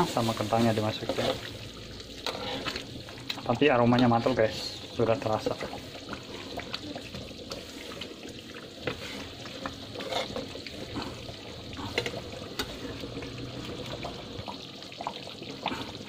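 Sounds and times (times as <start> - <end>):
stew bubbling in a pan: 0.0 - 16.0.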